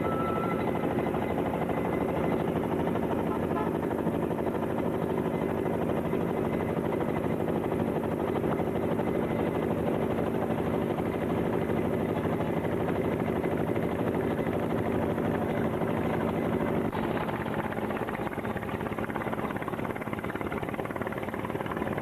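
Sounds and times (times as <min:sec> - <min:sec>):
engine running steadily: 0:00.0 - 0:22.0.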